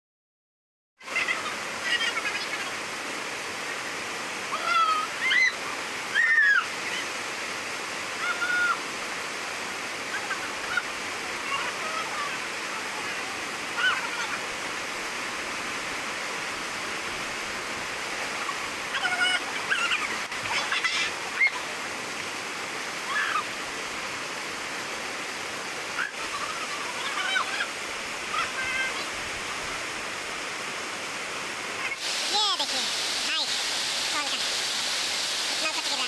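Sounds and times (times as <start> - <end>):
waterfall rushing over rock: 1.0 - 36.0
people shouting and laughing: 26.0 - 29.0.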